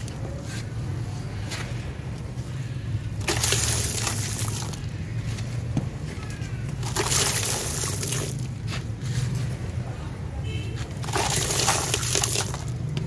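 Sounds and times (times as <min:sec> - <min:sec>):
grit pouring into water: 0:03.2 - 0:04.9, 0:06.8 - 0:08.5, 0:11.0 - 0:12.8.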